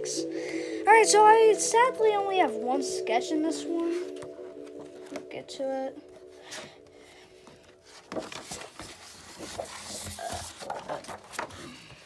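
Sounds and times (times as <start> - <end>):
paper rustling and scraping: 6.4 - 12.0.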